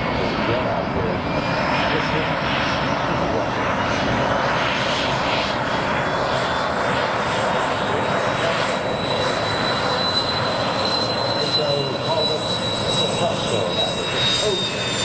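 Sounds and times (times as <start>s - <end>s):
jet engine roar with turbine whine: 0.0s - 15.0s.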